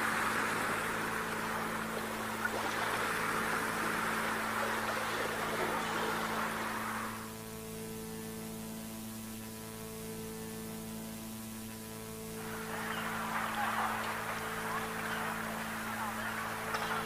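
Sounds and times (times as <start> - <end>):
rushing water-like noise: 0.0 - 7.4, 12.4 - 17.0
electrical mains hum: 0.0 - 17.0
faint hiss: 0.0 - 17.0.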